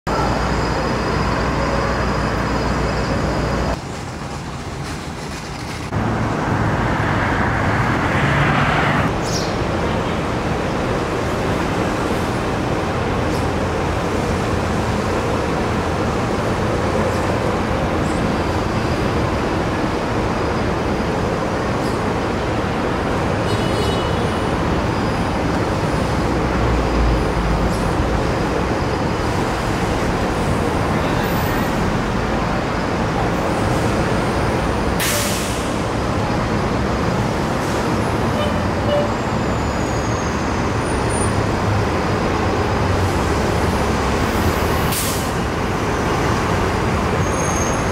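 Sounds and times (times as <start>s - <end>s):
cars passing: 5.5s - 35.0s
air brakes hissing: 35.0s - 35.9s, 44.8s - 45.4s.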